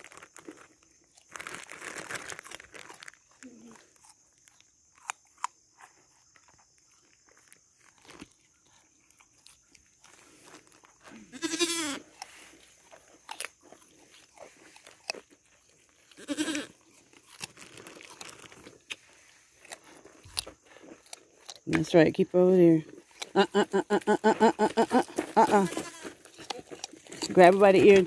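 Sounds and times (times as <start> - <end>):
goats chewing carrots: 0.0 - 28.0
goat bleating: 11.2 - 12.1, 16.1 - 16.8, 23.3 - 26.8.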